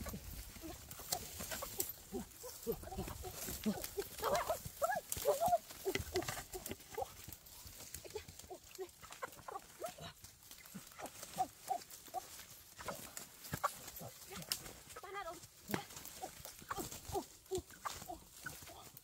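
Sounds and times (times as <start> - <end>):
chicken clucking and squawking: 0.0 - 7.1, 8.8 - 9.9
undergrowth rustling underfoot: 0.0 - 19.0.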